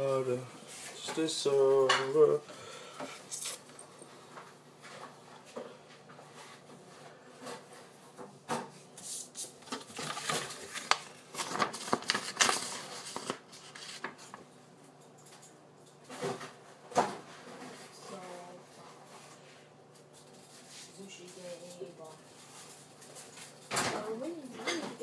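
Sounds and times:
paper and fabric rustling: 8.9 - 14.4.

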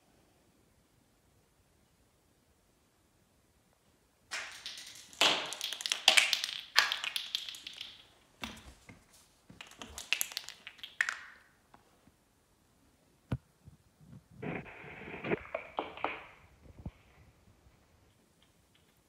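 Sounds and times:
plastic ball bouncing on tile: 4.3 - 8.9, 9.5 - 11.5, 15.2 - 17.0.

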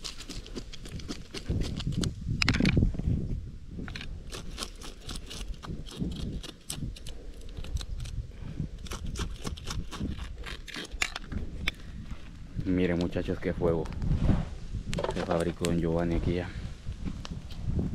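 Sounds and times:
knife scraping fish scales: 4.0 - 8.2, 8.8 - 11.3.

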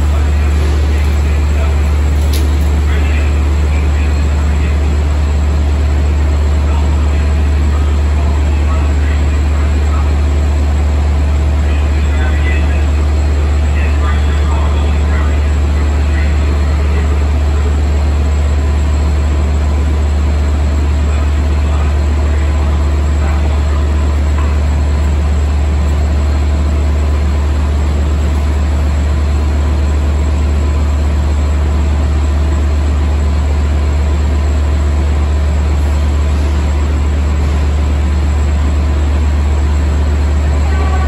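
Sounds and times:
diesel train idling: 0.0 - 41.0.

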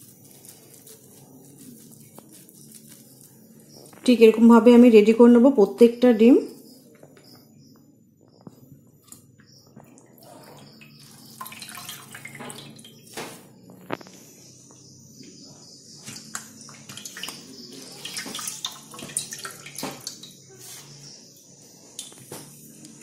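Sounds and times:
water dripping: 9.0 - 13.2, 16.0 - 20.4
water splashing: 10.4 - 13.0.

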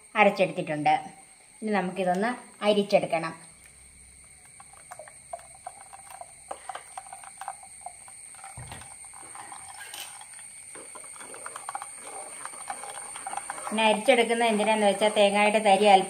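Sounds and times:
spoon scraping wire mesh: 4.5 - 15.1.

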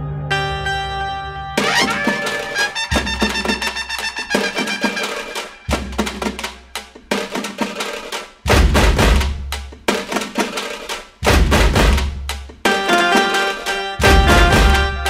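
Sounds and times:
busy percussive music: 1.6 - 15.0
deep bass hits: 8.5 - 9.5.

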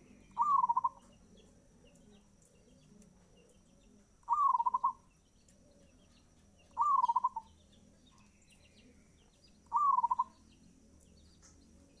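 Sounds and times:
dove cooing with rolling trill: 0.0 - 7.6, 9.6 - 10.4
small birds chirping: 0.0 - 12.0.

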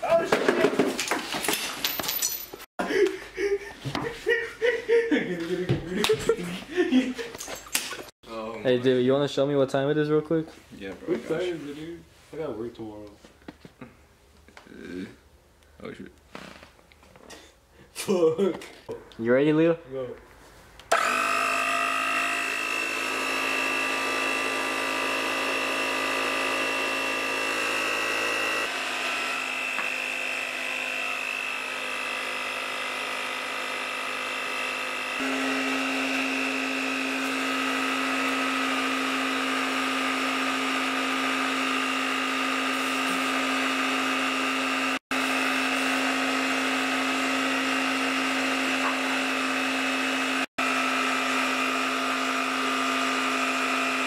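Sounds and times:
air compressor motor whine: 20.9 - 54.0.

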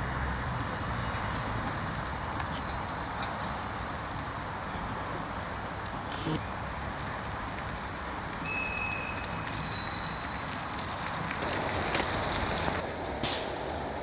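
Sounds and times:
tram rumbling on track: 0.0 - 14.0
wheels squealing on rails: 7.7 - 14.0.

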